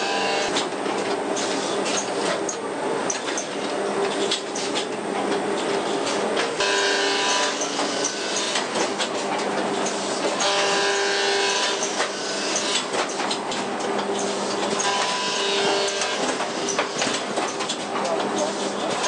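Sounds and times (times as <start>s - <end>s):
binding machine clatter and rattle: 0.0s - 19.0s
machine whine: 6.4s - 18.5s.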